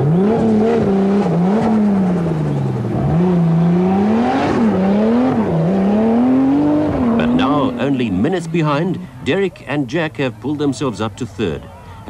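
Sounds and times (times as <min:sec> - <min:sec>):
engine revving: 0:00.0 - 0:09.0.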